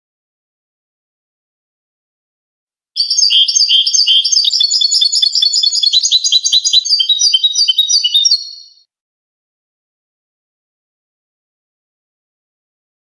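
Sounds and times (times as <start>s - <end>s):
goldfinch singing: 3.0s - 8.8s.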